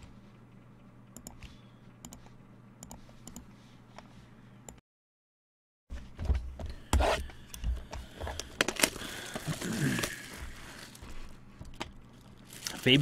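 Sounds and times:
trading card packaging crinkling: 0:08.4 - 0:11.0, 0:12.1 - 0:13.0.

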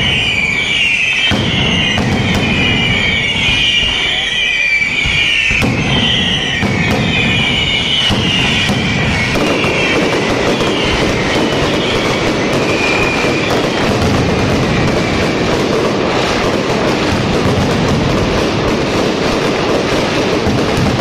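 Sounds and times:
firecracker bangs crackling: 0:00.0 - 0:21.0
whistling fireworks shrieking: 0:00.0 - 0:21.0.

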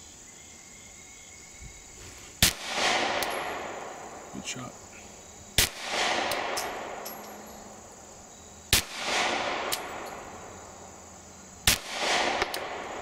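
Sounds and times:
pistol shots with rolling echo: 0:02.4 - 0:04.3, 0:05.6 - 0:07.8, 0:08.7 - 0:10.6, 0:11.6 - 0:13.0.

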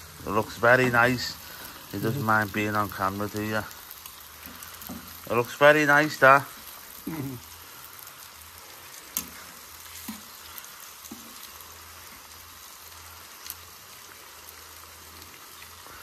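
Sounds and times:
meat sizzling on a griddle: 0:00.0 - 0:16.0.

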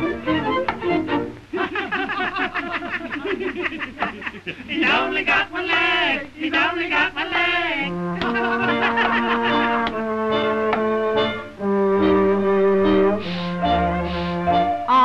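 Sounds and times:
orchestral music: 0:00.0 - 0:01.4, 0:07.9 - 0:14.9
cartoon voices laughing: 0:00.9 - 0:05.0, 0:08.2 - 0:09.8.

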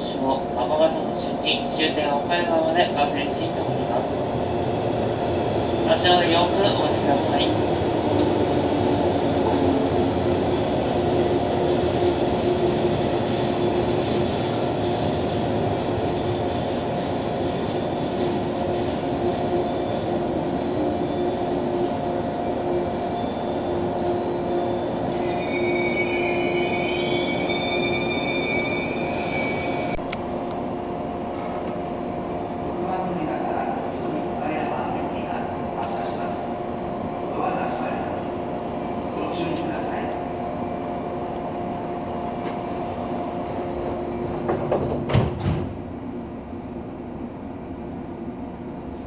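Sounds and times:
electric train pulling out: 0:03.2 - 0:32.5
high wheel squeal: 0:15.7 - 0:30.0.

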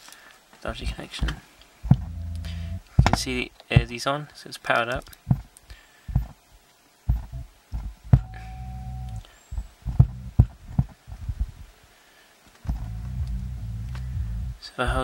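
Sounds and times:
low hum bursts from speaker: 0:00.6 - 0:04.0, 0:07.1 - 0:15.0
low thumps from speaker: 0:00.8 - 0:03.9, 0:05.3 - 0:05.5, 0:06.1 - 0:06.4, 0:07.1 - 0:08.5, 0:09.6 - 0:11.6, 0:12.6 - 0:14.6.

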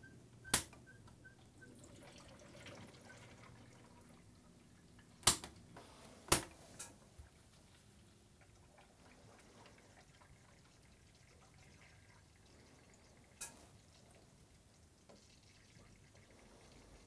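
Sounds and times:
coolant trickling and gurgling: 0:01.2 - 0:05.2, 0:07.2 - 0:17.0.

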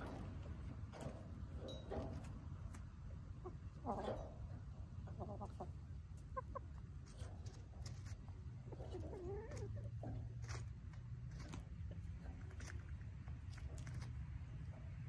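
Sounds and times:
hens clucking: 0:00.0 - 0:15.0.

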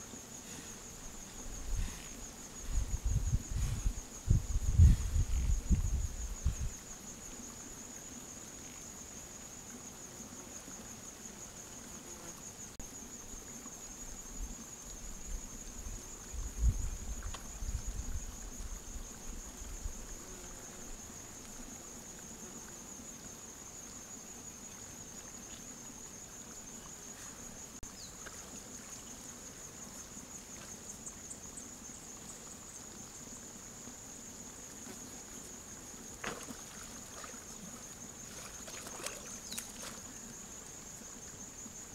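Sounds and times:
thuds and sloshing in mud: 0:36.2 - 0:37.4, 0:38.3 - 0:40.0
splash in mud: 0:36.2 - 0:37.5, 0:38.2 - 0:40.0.

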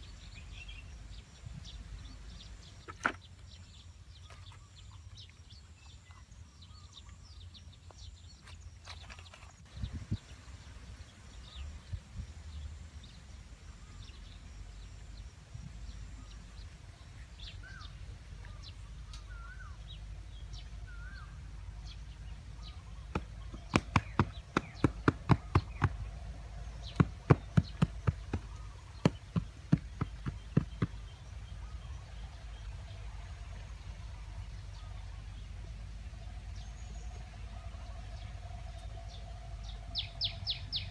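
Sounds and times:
bird chirps: 0:00.0 - 0:40.9
sharp knocks on roof: 0:23.1 - 0:26.0, 0:26.9 - 0:31.0.

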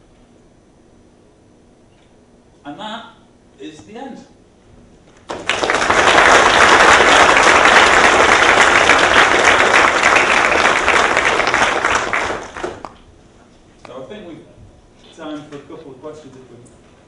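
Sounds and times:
audience applauding: 0:05.2 - 0:13.0.

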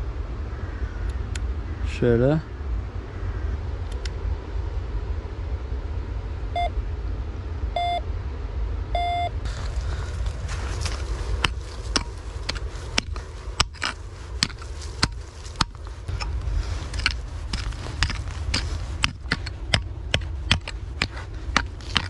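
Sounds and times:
low rumble: 0:00.0 - 0:22.0
pick striking stony soil: 0:09.5 - 0:22.0.

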